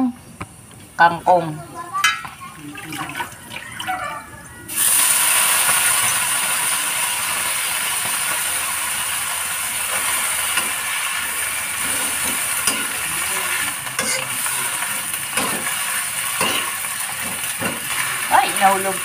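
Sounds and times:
vegetables sizzling in hot oil: 4.7 - 19.0.

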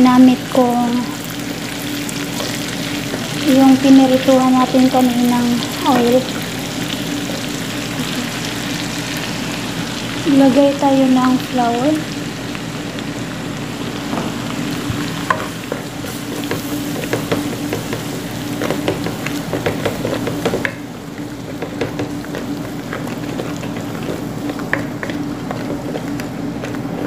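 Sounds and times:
flour sizzling in hot oil: 0.0 - 27.0
wooden spoon stirring: 21.2 - 27.0.

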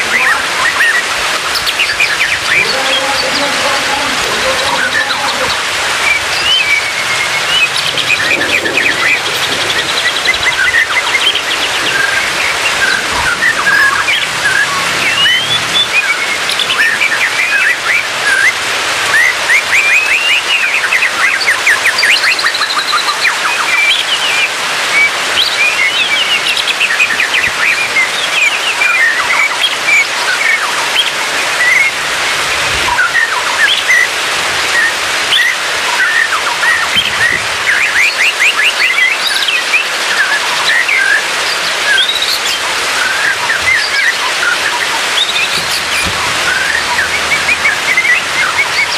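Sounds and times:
steady hiss: 0.0 - 27.8, 39.2 - 48.9
bird singing whistles and trills: 0.0 - 34.1, 34.7 - 48.9.

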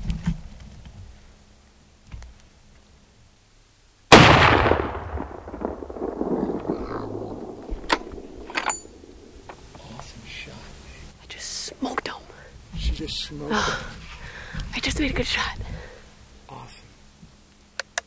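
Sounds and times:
rifle shot echoing: 4.1 - 9.6.

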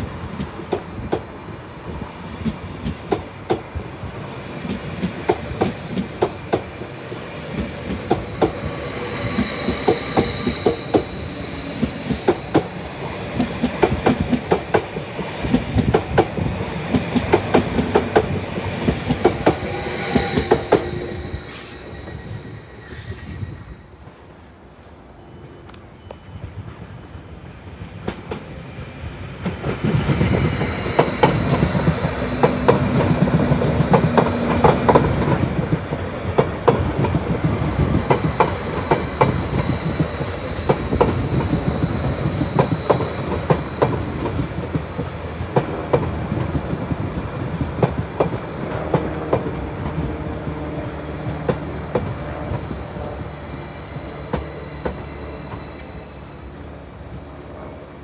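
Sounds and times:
passenger train passing: 0.0 - 58.0
high squealing tones: 7.4 - 12.8, 18.9 - 24.1, 29.6 - 34.0, 37.3 - 44.9, 49.5 - 57.4.

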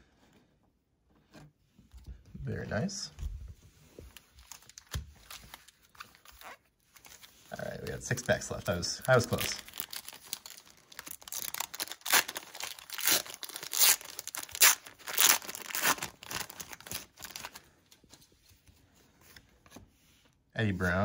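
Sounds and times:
card wrapper tearing and crinkling: 4.2 - 17.7.

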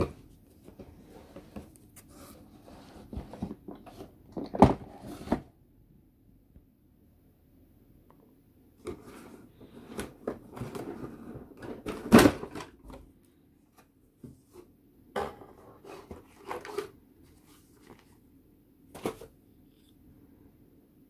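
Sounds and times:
cardboard scraping and rustling: 0.0 - 5.5, 15.4 - 18.2
paper rustling: 15.8 - 18.2.

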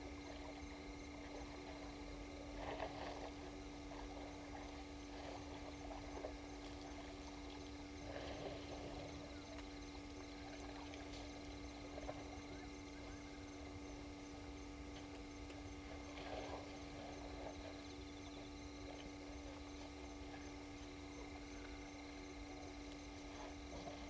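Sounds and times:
steady low hum: 0.0 - 24.0
water splashing and sloshing: 0.0 - 24.0.

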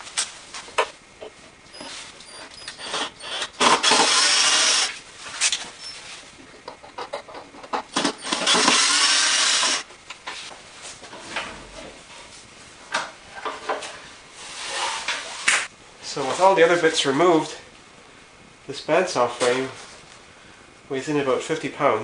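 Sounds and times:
cordless drill running: 2.8 - 5.0, 8.0 - 9.8.

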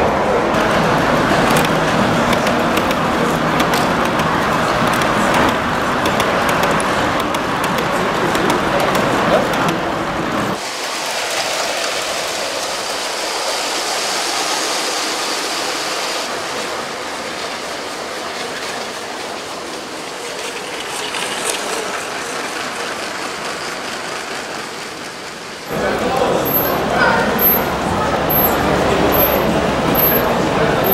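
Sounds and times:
toy train clattering on plastic track: 1.3 - 9.8, 20.2 - 25.6.

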